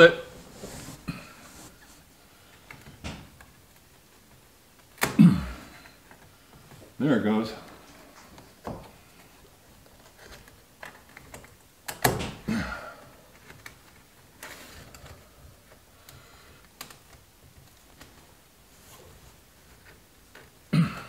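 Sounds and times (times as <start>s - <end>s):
fabric rustling: 0.0s - 2.2s.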